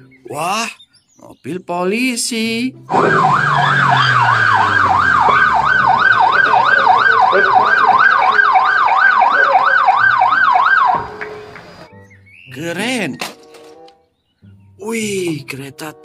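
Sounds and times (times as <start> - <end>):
police siren yelping: 2.9 - 11.9.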